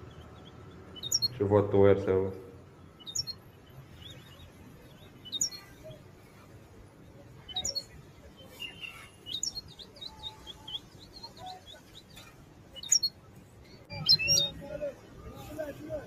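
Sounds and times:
goldfinch chirping and twittering: 0.0s - 1.4s, 3.0s - 6.0s, 7.4s - 14.6s.

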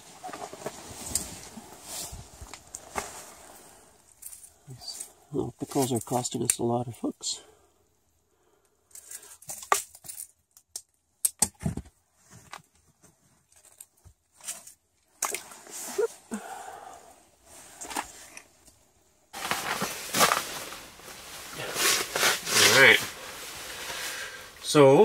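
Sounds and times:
clothing rustling: 0.0s - 5.1s, 19.3s - 25.0s
steady hiss-like noise: 15.6s - 25.0s.

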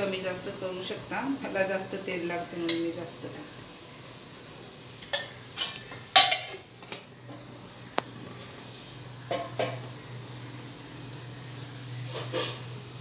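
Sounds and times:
steel ladle clinking on pots: 5.0s - 6.6s.

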